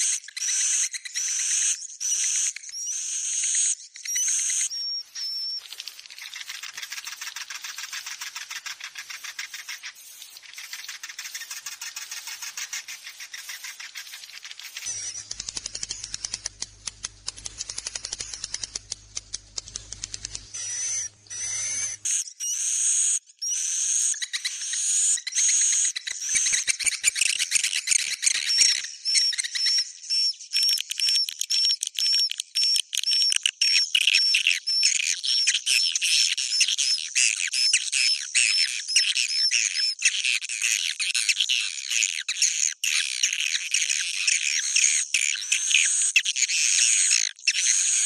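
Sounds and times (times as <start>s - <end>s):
swiftlet chirps and twitters: 0.3s - 27.1s
rapid clicking: 6.3s - 21.0s.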